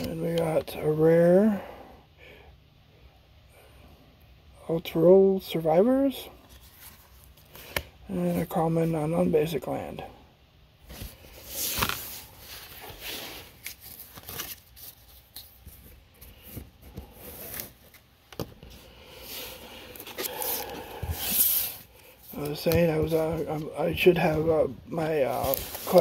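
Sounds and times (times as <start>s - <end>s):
cards rustling and scraping: 6.4s - 8.5s, 10.9s - 26.0s
foil pack crinkling: 25.2s - 26.0s.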